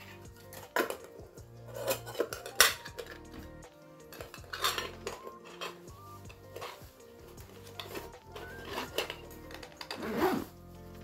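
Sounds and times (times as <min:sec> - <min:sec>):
metal pot and lid clinking: 0:01.7 - 0:03.4, 0:04.1 - 0:05.9, 0:07.7 - 0:10.0.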